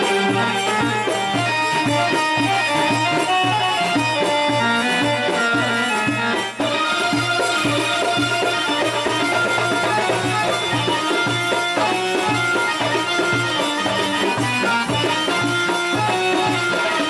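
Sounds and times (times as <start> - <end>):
sustained folk melody: 0.0 - 17.0.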